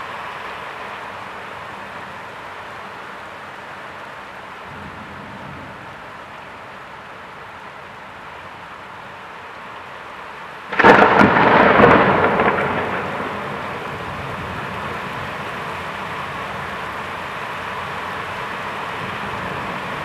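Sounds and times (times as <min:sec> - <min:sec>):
steady rain: 0:00.0 - 0:20.0
thunderclap: 0:10.7 - 0:14.6.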